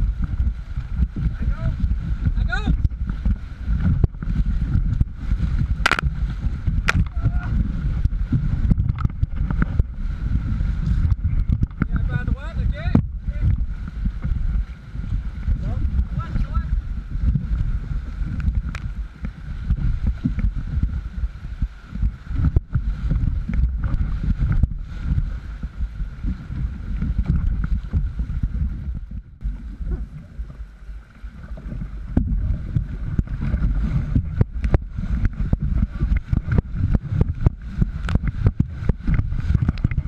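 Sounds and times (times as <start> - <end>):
wind rumble on microphone: 0.0 - 40.0
sharp water splashes: 5.0 - 7.6.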